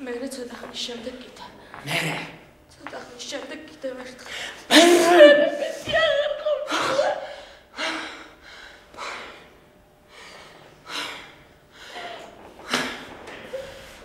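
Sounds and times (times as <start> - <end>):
woman sobbing: 4.7 - 8.2.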